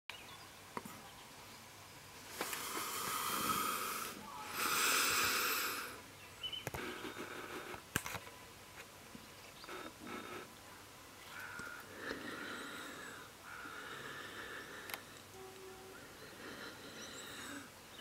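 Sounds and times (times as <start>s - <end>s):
long breaths: 2.3s - 6.1s, 11.4s - 18.0s.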